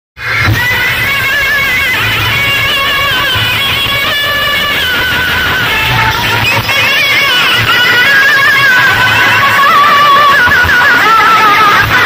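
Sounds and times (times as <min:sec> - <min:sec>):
high wavering lead melody: 0:00.2 - 0:12.0.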